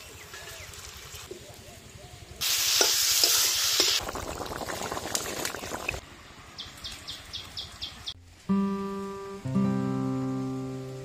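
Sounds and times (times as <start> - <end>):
dough sizzling in hot oil: 2.4 - 6.0.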